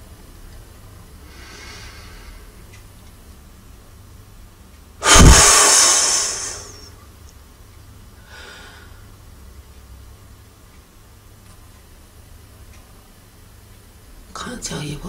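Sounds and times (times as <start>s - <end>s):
soft breath: 1.3s - 2.5s, 8.2s - 9.0s
woman blowing hard breath: 5.0s - 6.9s.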